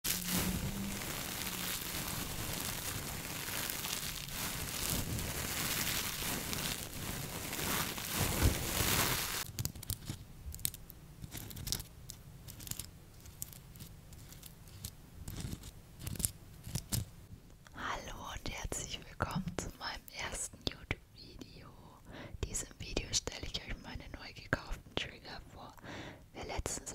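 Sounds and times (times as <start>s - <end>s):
metal scrubber crinkling on microphone: 0.0s - 17.1s
scattered crackles and taps: 1.9s - 17.7s.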